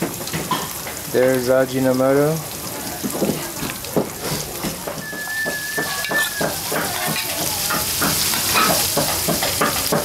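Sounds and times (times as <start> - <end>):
ingredients being pounded: 3.0 - 10.0
thin high whistle: 5.0 - 6.6.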